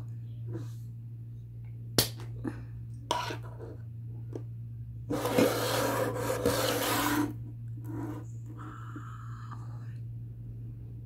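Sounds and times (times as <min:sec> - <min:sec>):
constant low hum: 0:00.0 - 0:11.0
rubbing or scraping noise: 0:05.1 - 0:08.3.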